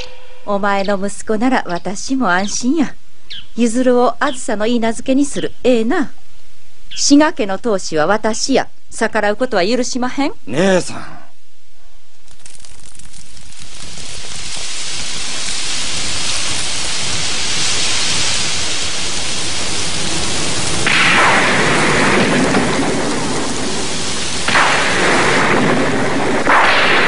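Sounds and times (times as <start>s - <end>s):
heavy rain falling: 12.2s - 27.0s
thunder rolling: 14.0s - 27.0s.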